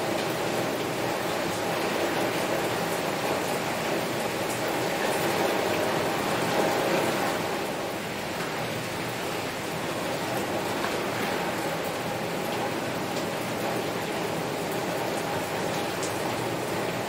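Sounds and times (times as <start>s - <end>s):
heavy rain on a window: 0.0s - 17.0s
raindrops ticking: 8.3s - 17.0s.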